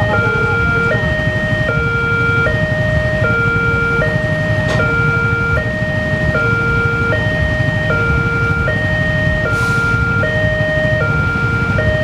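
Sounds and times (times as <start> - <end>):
two-tone crossing alarm: 0.0 - 12.0.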